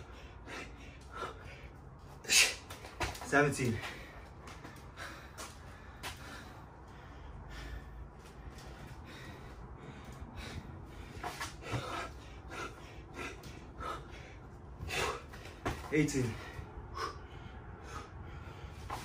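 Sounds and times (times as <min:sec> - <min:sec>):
quick noisy gasping breaths: 0:00.0 - 0:03.2, 0:03.8 - 0:15.6
man breathing hard: 0:00.0 - 0:19.0.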